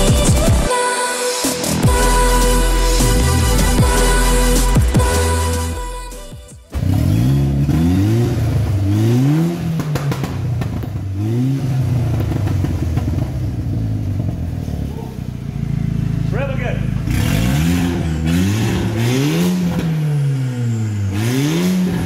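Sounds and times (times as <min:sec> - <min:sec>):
car engine revving and idling: 0:01.6 - 0:22.0.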